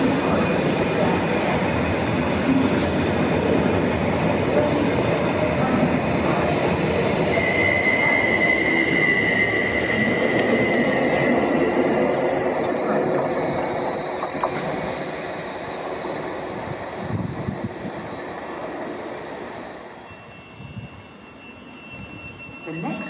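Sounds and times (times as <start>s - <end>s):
train wheels rumbling on rail: 0.0s - 19.7s
high steady squeal: 4.8s - 23.0s.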